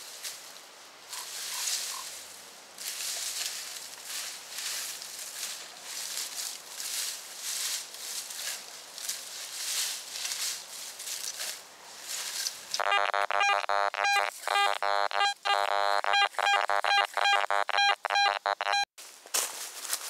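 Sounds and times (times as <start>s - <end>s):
footsteps in dry leaves: 2.8s - 12.7s, 19.0s - 20.0s
metal detector beeping: 12.8s - 18.9s.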